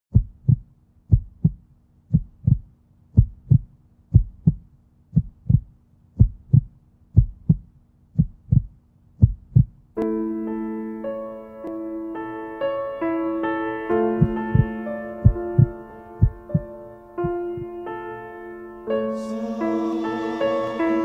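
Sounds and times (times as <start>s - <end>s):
heartbeat thumps: 0.1s - 9.9s, 14.2s - 17.8s
sustained piano chords: 10.0s - 21.0s.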